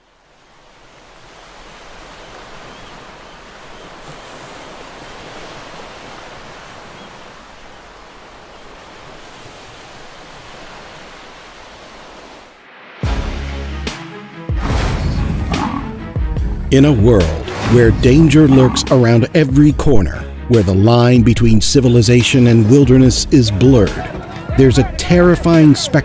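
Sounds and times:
ocean surf washing onto beach: 0.0s - 13.0s, 16.7s - 19.4s, 21.7s - 26.0s
loud music: 13.0s - 26.0s.

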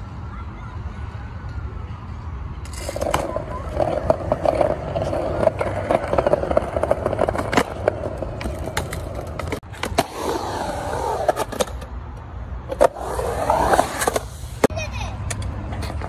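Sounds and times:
skateboard wheels rolling on concrete: 0.0s - 16.0s
skateboard clacking on concrete: 2.7s - 11.9s.

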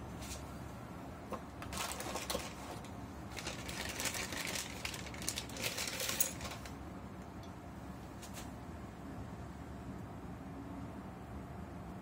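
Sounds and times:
packaging rustling: 1.6s - 6.8s.

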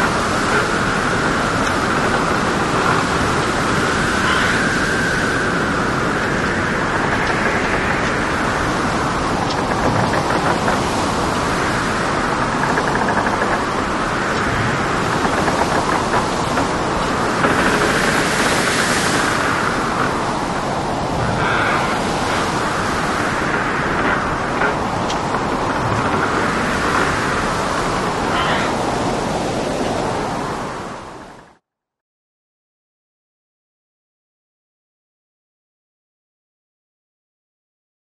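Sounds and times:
rain: 0.0s - 31.6s
rushing waves: 0.0s - 31.6s.

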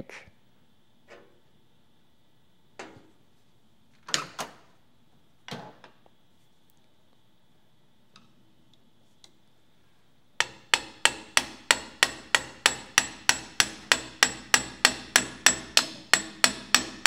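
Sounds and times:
hammer tapping on metal shaft: 10.4s - 17.0s.

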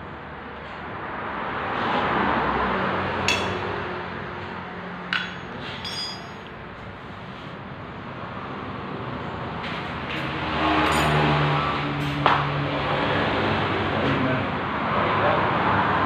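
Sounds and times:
metal tools clinking: 3.3s - 3.7s, 5.2s - 6.5s
metallic jingle: 5.2s - 6.5s.

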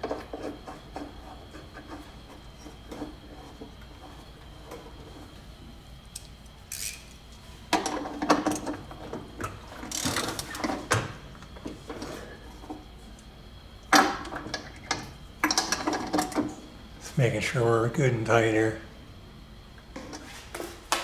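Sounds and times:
socket ratchet clicking: 6.2s - 7.1s.

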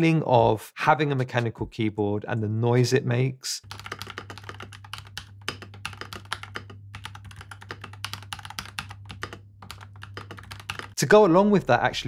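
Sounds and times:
mechanical keyboard typing: 3.7s - 11.0s.

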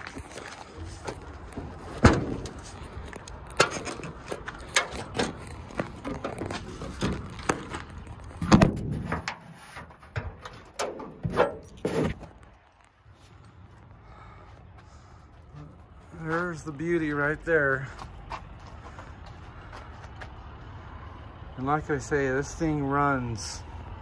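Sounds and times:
items knocking and scraping: 0.0s - 12.6s.

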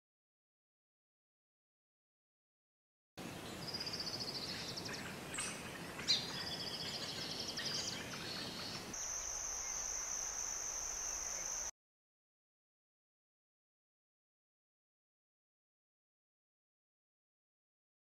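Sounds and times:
high insect buzz: 9.0s - 11.7s.

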